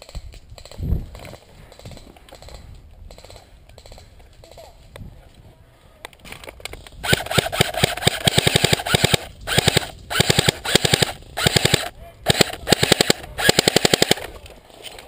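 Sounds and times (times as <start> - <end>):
airsoft gun firing bursts: 7.0 - 14.4.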